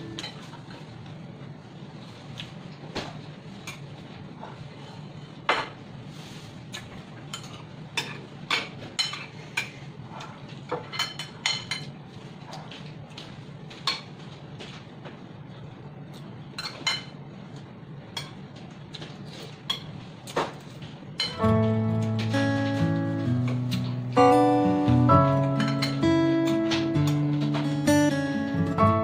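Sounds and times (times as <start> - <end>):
low steady hum: 0.0 - 6.0.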